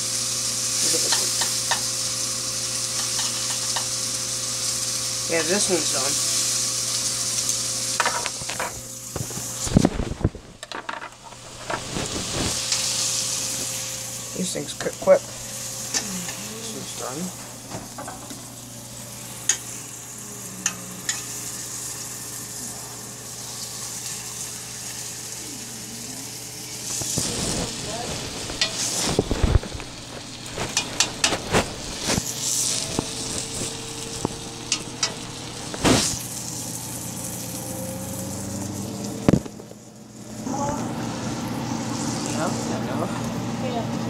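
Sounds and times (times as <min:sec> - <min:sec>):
meat sizzling in a frying pan: 0:00.0 - 0:43.9
utensils clinking against pan: 0:00.8 - 0:01.9, 0:03.0 - 0:03.9, 0:30.7 - 0:31.5, 0:34.7 - 0:35.3.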